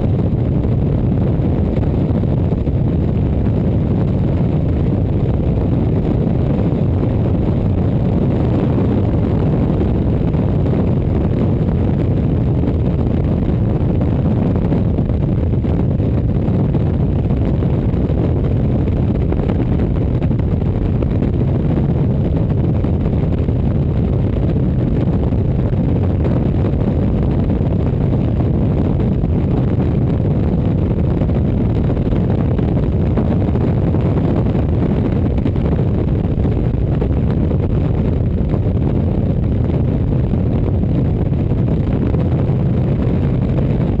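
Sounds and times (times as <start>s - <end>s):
motorcycle engine drone: 0.0s - 44.0s
wind buffeting the microphone: 0.0s - 44.0s.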